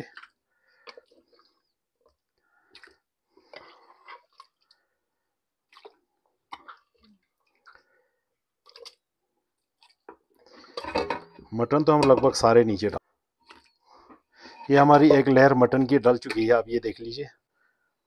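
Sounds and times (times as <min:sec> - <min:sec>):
soft wet squishes of meat: 0:00.0 - 0:10.8, 0:12.9 - 0:14.9.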